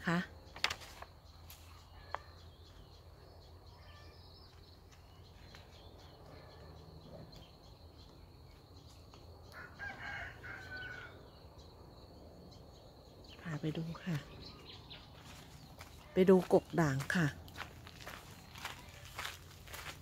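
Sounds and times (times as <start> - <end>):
outdoor background noise: 0.0 - 20.0
distant rooster crowing: 9.4 - 11.4.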